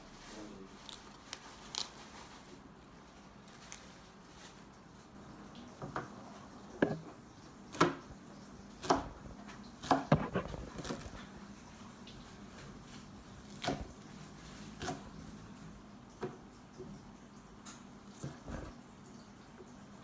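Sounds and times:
knife chopping on plastic board: 0:07.7 - 0:08.0, 0:08.8 - 0:09.2, 0:09.8 - 0:11.1.

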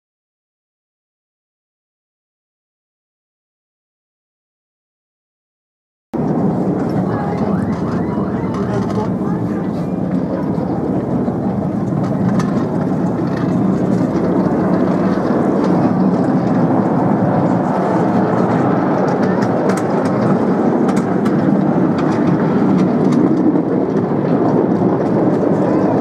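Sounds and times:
train wheels rumbling on rails: 0:06.2 - 0:26.0.

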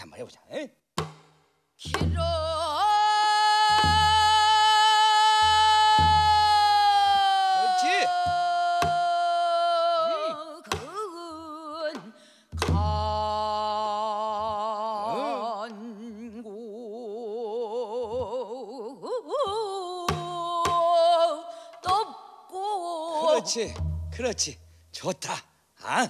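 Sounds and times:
sharp knocks: 0:01.0 - 0:02.3
woman singing with heavy vibrato: 0:01.8 - 0:23.8.

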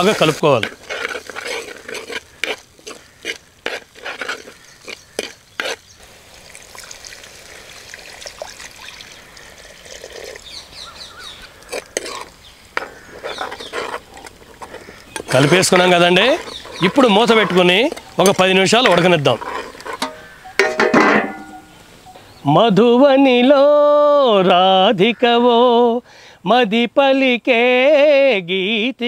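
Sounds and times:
ladle scraping a pot: 0:00.0 - 0:06.0, 0:06.7 - 0:10.6, 0:11.2 - 0:21.8
food sizzling: 0:00.0 - 0:20.8
ladle knocking against pot: 0:20.0 - 0:21.7.

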